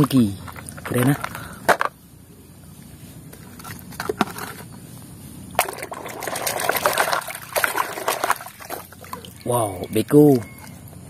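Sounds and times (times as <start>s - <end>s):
water splashing and trickling: 5.4s - 10.0s.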